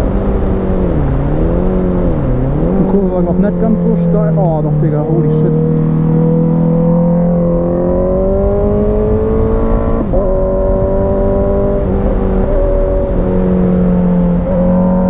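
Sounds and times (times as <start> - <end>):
motorcycle engine revving: 0.0 - 15.0
wind rushing on microphone: 0.0 - 15.0.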